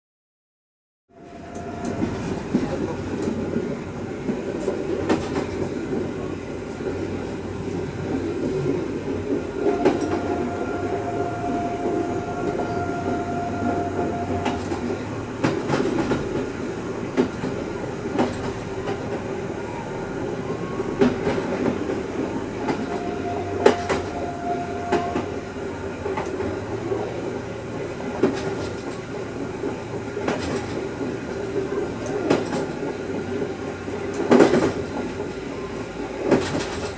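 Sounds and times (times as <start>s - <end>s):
railcar running noise: 1.1s - 36.9s
steady high tone: 9.4s - 26.0s
wheels clicking over rail joints: 28.1s - 35.4s, 36.2s - 36.9s.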